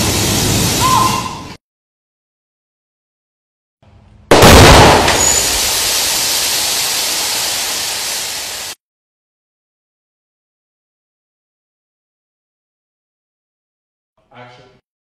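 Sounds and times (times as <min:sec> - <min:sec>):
pyrotechnic explosion blast: 0:04.3 - 0:08.2.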